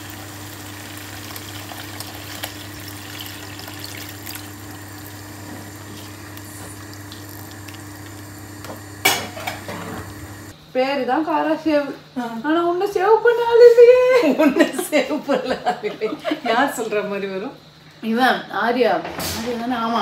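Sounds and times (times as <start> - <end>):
liquid pouring into pan: 0.0 - 9.6.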